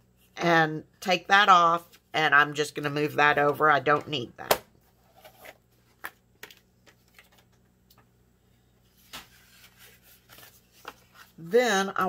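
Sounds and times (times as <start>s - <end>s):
card stock rustling: 9.0s - 11.5s.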